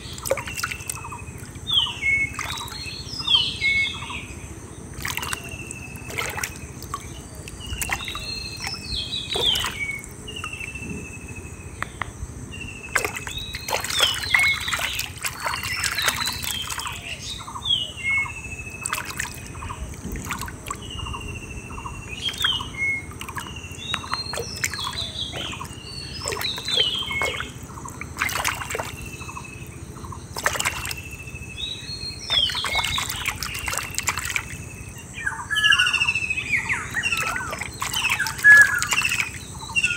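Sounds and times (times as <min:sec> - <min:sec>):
hand splashing in muddy water: 0:00.0 - 0:02.8, 0:05.0 - 0:10.6, 0:12.9 - 0:17.0, 0:18.8 - 0:19.6, 0:23.2 - 0:29.1, 0:30.3 - 0:31.1, 0:32.2 - 0:34.6, 0:37.0 - 0:39.4
bird whistling call: 0:07.7 - 0:10.8, 0:35.2 - 0:39.9.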